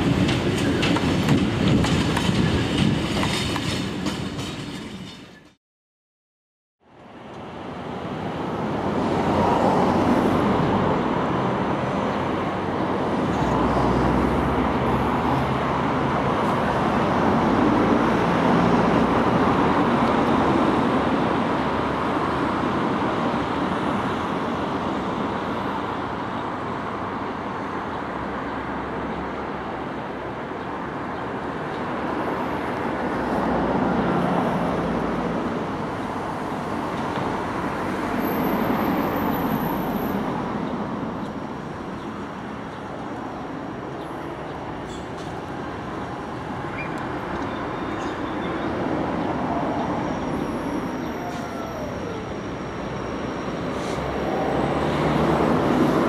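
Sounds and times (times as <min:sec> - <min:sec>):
rail-yard noise: 0:00.0 - 0:05.6, 0:06.8 - 0:56.0
traffic roar: 0:00.0 - 0:05.6, 0:06.8 - 0:56.0.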